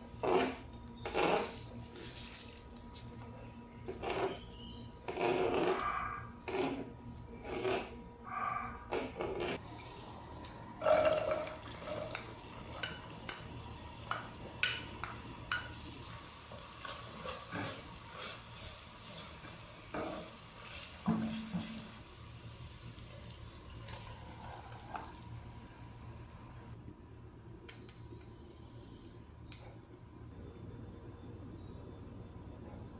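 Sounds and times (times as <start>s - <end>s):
wooden spoon scraping pot: 3.8s - 8.0s, 8.8s - 9.9s, 16.5s - 22.0s
onion sizzling in oil: 16.0s - 24.4s.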